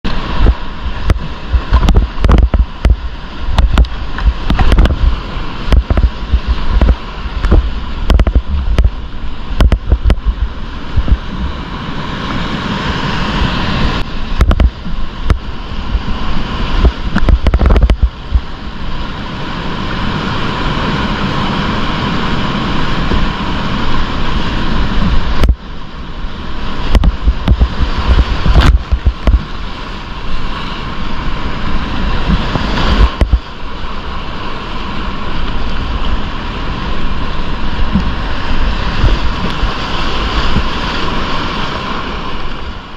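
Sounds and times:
kayak splashes and knocks: 0:00.1 - 0:11.6, 0:26.8 - 0:29.7, 0:32.2 - 0:33.7
whitewater rapid rushing: 0:00.1 - 0:42.9.

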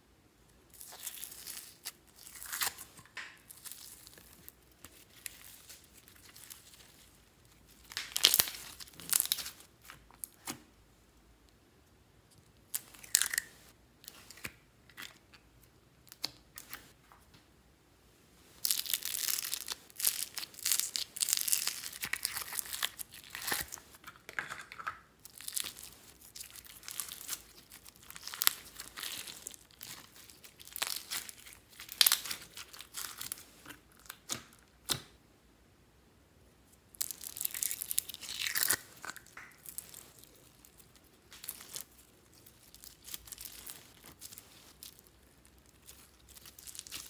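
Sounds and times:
slime popping and crackling: 0:07.7 - 0:10.5, 0:18.6 - 0:24.6, 0:25.2 - 0:33.4, 0:36.9 - 0:47.0.

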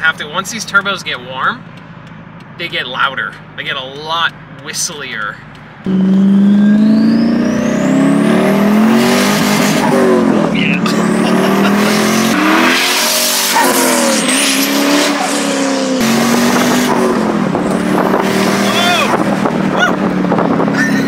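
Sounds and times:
car engine revving: 0:00.3 - 0:21.0
turbos whistling: 0:05.9 - 0:10.2.

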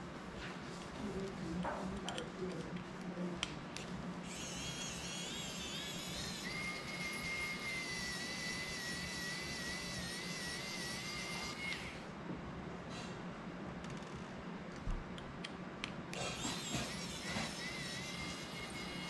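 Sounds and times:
electric screwdriver motor whine: 0:04.3 - 0:12.0, 0:16.4 - 0:19.0.

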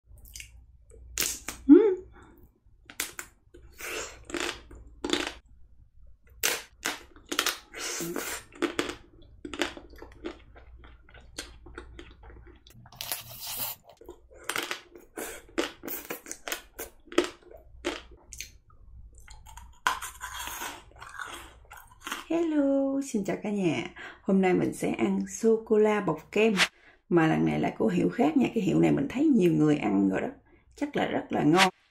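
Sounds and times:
wet chewing: 0:06.4 - 0:22.3.

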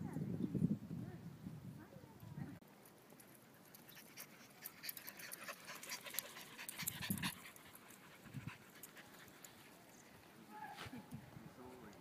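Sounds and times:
dog panting: 0:03.7 - 0:09.8.

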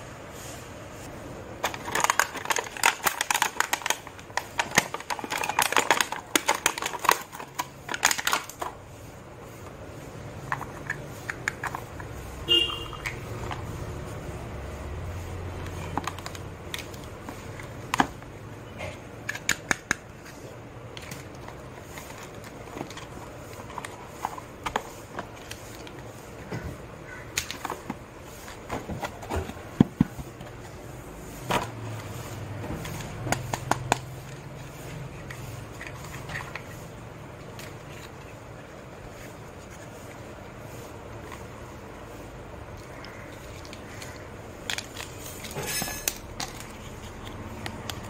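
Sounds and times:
plastic toy pieces clicking: 0:01.6 - 0:08.7, 0:19.2 - 0:26.0, 0:42.7 - 0:48.0.

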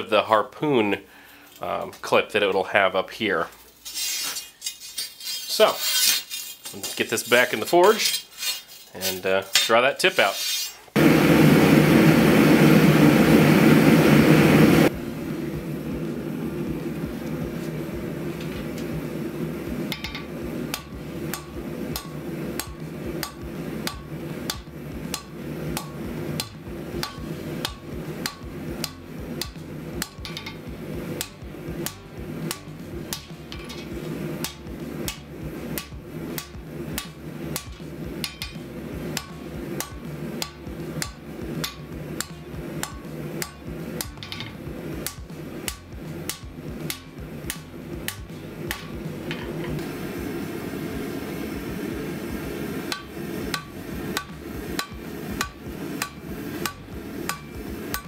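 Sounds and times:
steady hum: 0:10.9 - 0:58.0
loud forge roar: 0:11.0 - 0:58.0
hammer striking steel on anvil: 0:19.9 - 0:49.9, 0:52.9 - 0:58.0.

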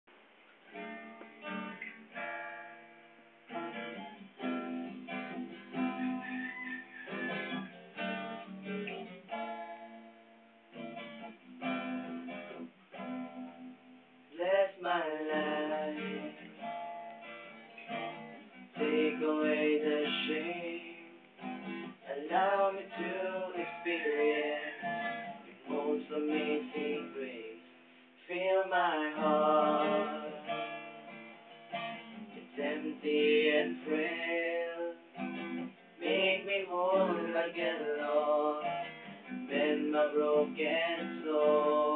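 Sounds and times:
acoustic guitar strumming: 0:00.7 - 0:41.9
person singing: 0:14.4 - 0:16.4, 0:18.8 - 0:21.2, 0:22.1 - 0:27.6, 0:28.3 - 0:30.5, 0:32.5 - 0:35.0, 0:36.0 - 0:38.7, 0:39.5 - 0:41.9.

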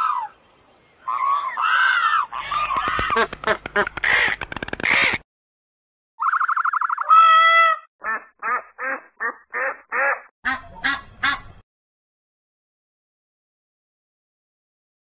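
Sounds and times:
recorded bird calls: 0:00.0 - 0:05.2, 0:06.2 - 0:11.6
trilling bird call: 0:01.0 - 0:04.2, 0:06.2 - 0:07.9, 0:10.0 - 0:11.6
duck quacks: 0:07.5 - 0:11.4.

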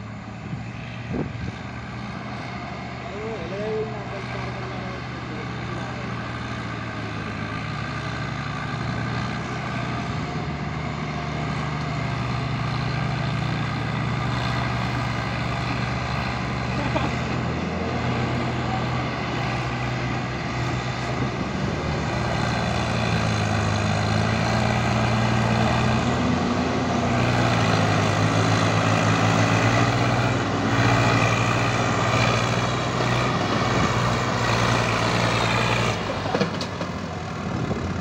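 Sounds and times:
tractor diesel engine under load: 0:00.0 - 0:38.0.

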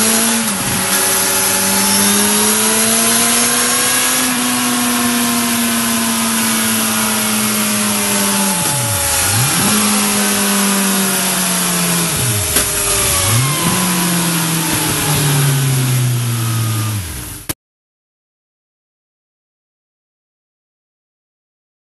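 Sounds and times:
motorcycle engine at high revs: 0:00.0 - 0:17.6.

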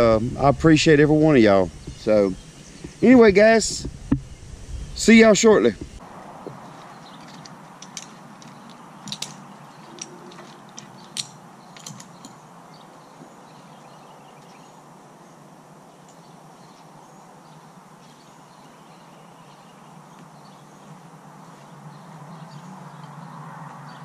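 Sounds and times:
faint outdoor hiss: 0:00.0 - 0:24.0
metallic clicks and clinks: 0:07.2 - 0:12.4.

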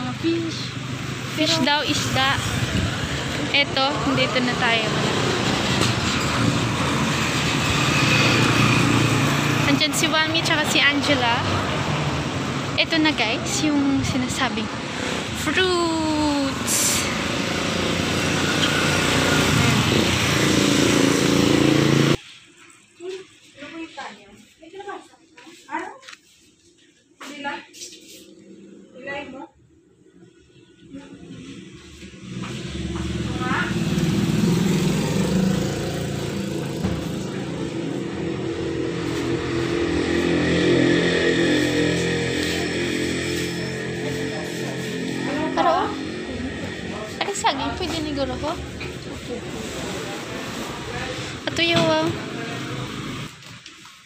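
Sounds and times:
vehicle engine running: 0:31.8 - 0:53.4
motor engine running: 0:32.3 - 0:40.8.

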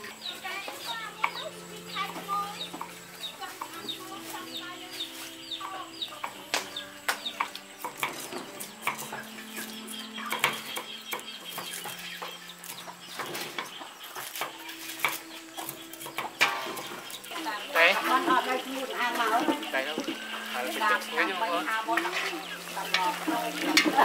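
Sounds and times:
chickens clucking and peeping: 0:00.0 - 0:24.0
cleavers chopping on wooden block: 0:06.5 - 0:09.3.

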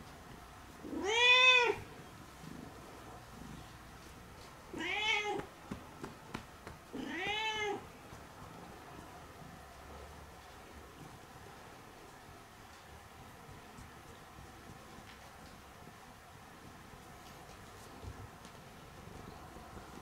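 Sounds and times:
cat meowing: 0:00.8 - 0:01.9, 0:04.7 - 0:05.5, 0:06.9 - 0:07.8.

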